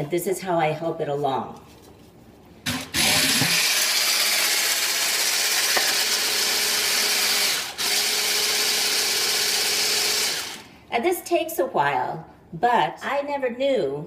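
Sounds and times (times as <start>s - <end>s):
immersion blender motor running: 2.7s - 10.7s.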